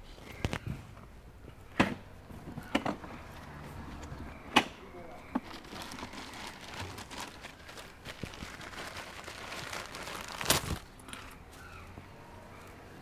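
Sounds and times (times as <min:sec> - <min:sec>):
rustling: 0:05.4 - 0:11.6.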